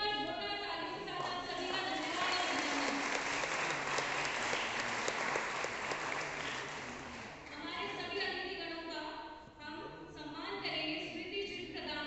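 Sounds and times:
audience applauding: 0:01.6 - 0:07.6.

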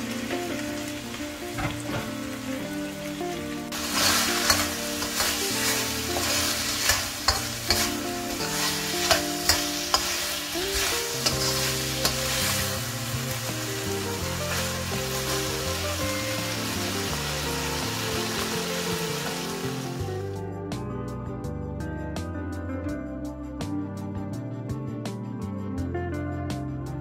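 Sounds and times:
food sizzling in a wok: 0:00.0 - 0:20.4
calm background music: 0:00.0 - 0:27.0
metal spatula scraping wok: 0:03.7 - 0:13.4.

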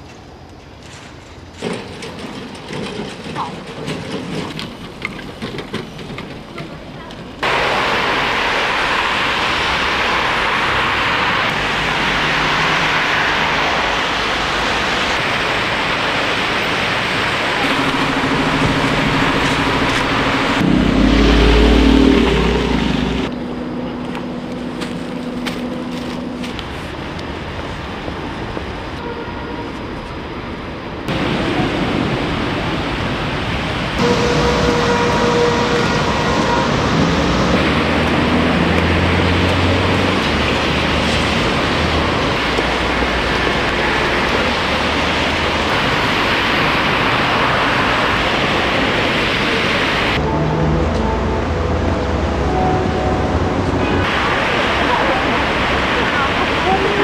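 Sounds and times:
street traffic hiss: 0:00.0 - 0:57.0
vehicle engine rumbling loudly: 0:07.4 - 0:26.6
low engine drone: 0:07.4 - 0:27.2, 0:33.9 - 0:57.0.

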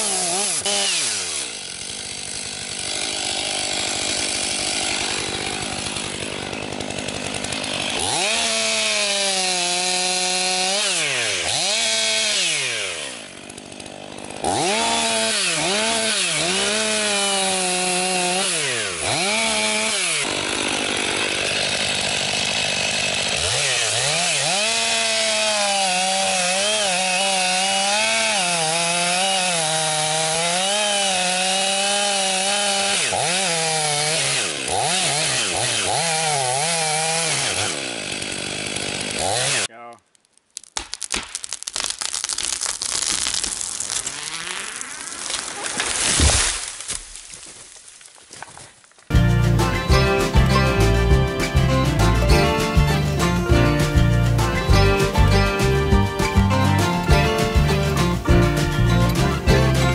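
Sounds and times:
chainsaw sawing into a trunk: 0:00.0 - 0:39.7, 0:42.8 - 0:47.6.

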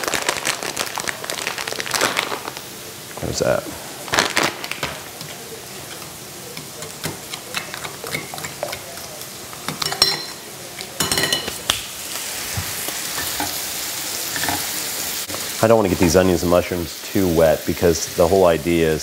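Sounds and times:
sausage sizzling in a frying pan: 0:00.0 - 0:19.0
spoon stirring in a glass bowl: 0:05.8 - 0:09.1
spoon clinking against bowl: 0:09.7 - 0:11.6.

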